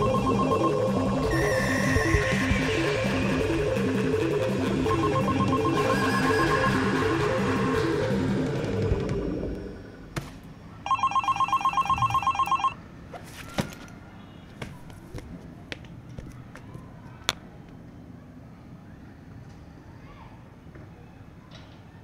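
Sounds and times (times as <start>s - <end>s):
phone ringing: 0.0s - 9.0s, 10.9s - 12.8s.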